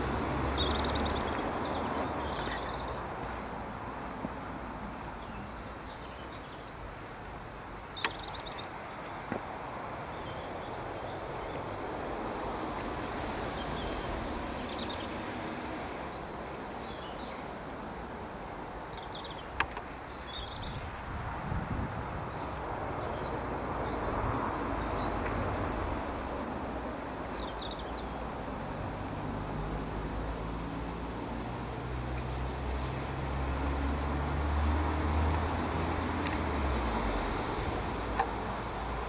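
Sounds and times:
birds chirping: 0:00.0 - 0:03.6, 0:04.9 - 0:12.1, 0:13.5 - 0:15.3, 0:16.0 - 0:21.0, 0:22.3 - 0:28.2.

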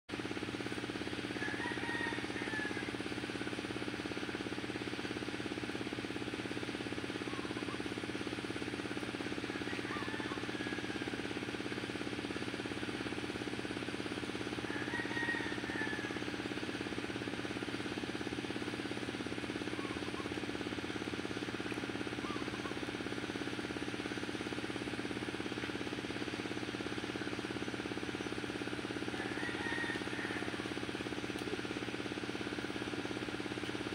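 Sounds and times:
engine running steadily: 0:00.1 - 0:33.9.

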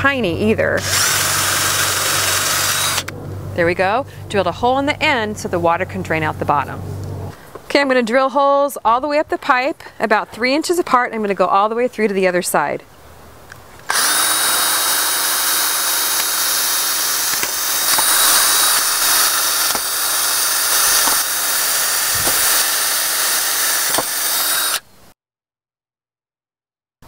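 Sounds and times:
cordless drill whining: 0:00.8 - 0:03.1, 0:13.9 - 0:24.9
sharp clicks: 0:17.2 - 0:19.9.

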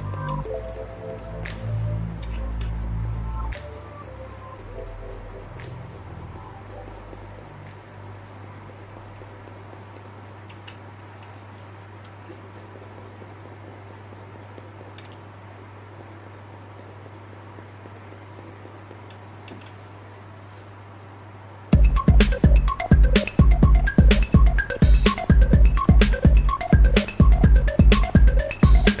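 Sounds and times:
pencil scratching on paper: 0:00.0 - 0:21.1.

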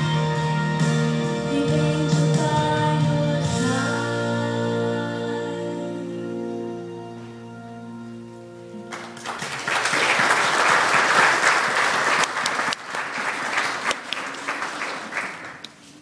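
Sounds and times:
congregation applauding: 0:08.9 - 0:15.9.

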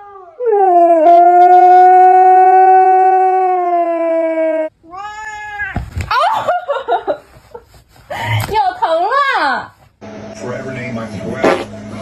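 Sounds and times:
dog howling: 0:00.0 - 0:04.7.

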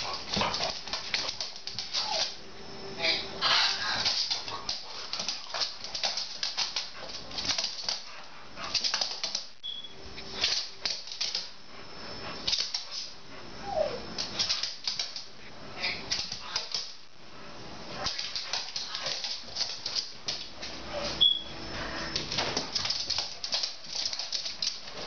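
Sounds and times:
dog claws scrabbling on hard floor: 0:00.0 - 0:02.3, 0:04.0 - 0:09.5, 0:18.0 - 0:20.7, 0:22.2 - 0:25.0
dog whining: 0:13.6 - 0:14.1.

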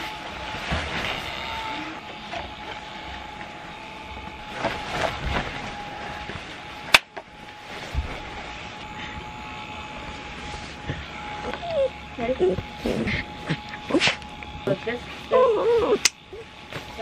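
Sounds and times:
blower fans whirring: 0:00.0 - 0:17.0
nylon fabric rustling: 0:04.0 - 0:08.7.

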